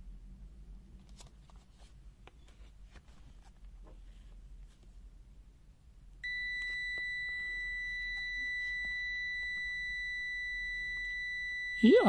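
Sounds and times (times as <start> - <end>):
multimeter continuity beeper tone: 6.2 - 12.0.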